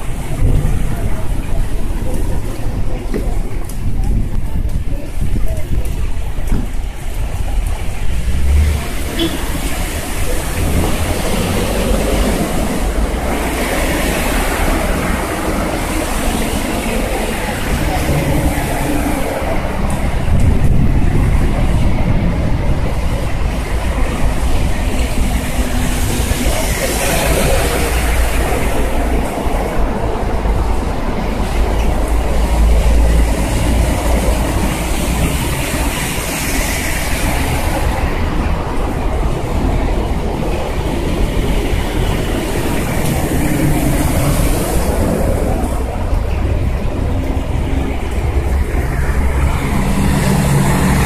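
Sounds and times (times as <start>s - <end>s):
car tyres on wet street: 0.0s - 51.0s
vehicle rumble: 0.0s - 51.0s.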